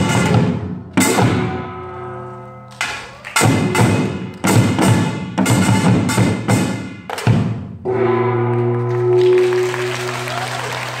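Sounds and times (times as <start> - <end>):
percussion ensemble drums and gongs: 0.0 - 2.1, 2.7 - 11.0
gong ringing: 7.9 - 10.4.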